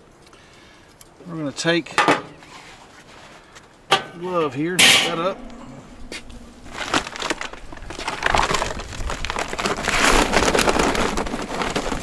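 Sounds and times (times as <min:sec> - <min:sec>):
charcoal rattling and crunching: 0:03.9 - 0:12.0
bag crinkling: 0:05.3 - 0:12.0.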